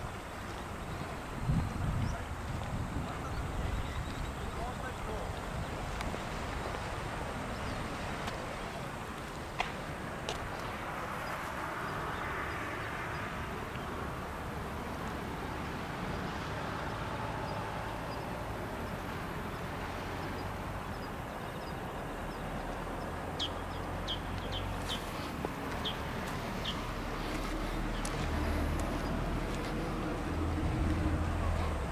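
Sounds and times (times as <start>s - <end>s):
distant waves: 0.0s - 31.9s
wind: 0.0s - 31.9s.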